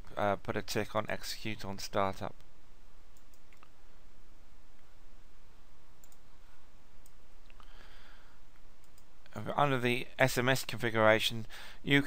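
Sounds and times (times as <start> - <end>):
computer mouse clicks: 3.2 - 3.7, 6.0 - 6.2, 8.8 - 9.1.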